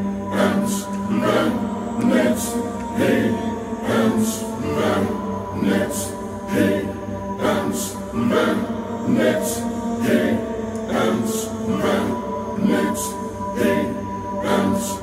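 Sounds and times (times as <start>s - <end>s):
layered choir chanting: 0.0s - 15.0s.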